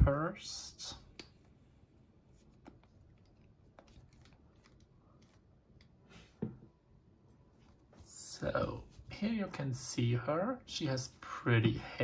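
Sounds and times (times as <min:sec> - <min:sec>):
hands handling plastic doll: 0:01.1 - 0:06.6.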